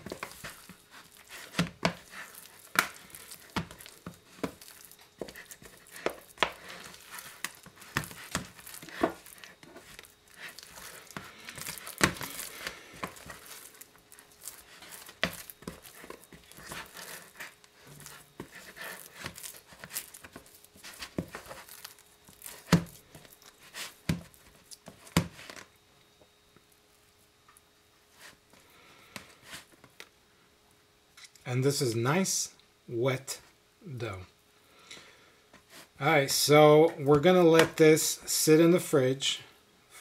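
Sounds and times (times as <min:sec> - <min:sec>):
dough squelching and tearing: 0:00.0 - 0:25.7.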